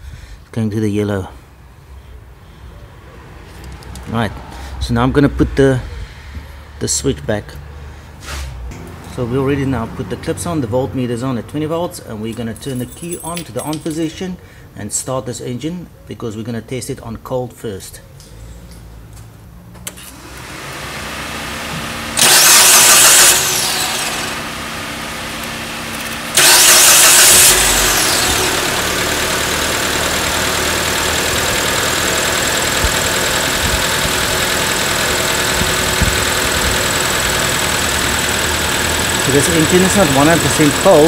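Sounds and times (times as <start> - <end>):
car engine idling: 20.2 - 41.0
starter motor cranking: 22.1 - 24.5, 25.4 - 41.0.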